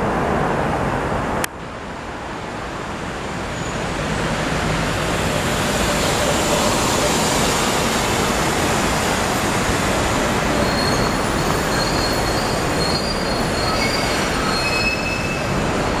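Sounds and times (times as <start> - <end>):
high-pitched squeals: 10.5 - 16.0.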